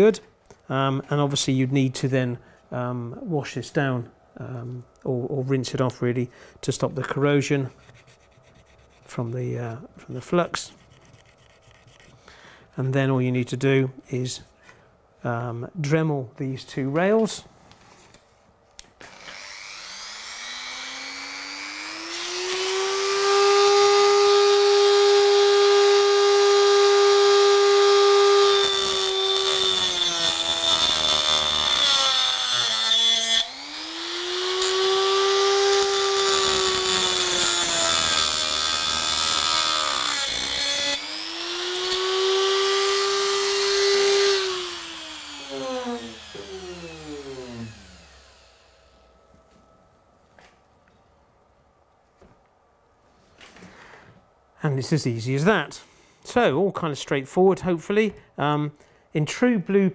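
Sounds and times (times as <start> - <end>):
rotary tool cutting metal rail: 19.0 - 49.0.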